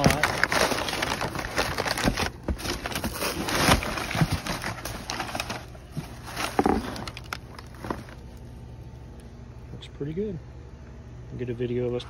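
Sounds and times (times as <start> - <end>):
plastic wrap and paper crinkling: 0.0 - 8.6.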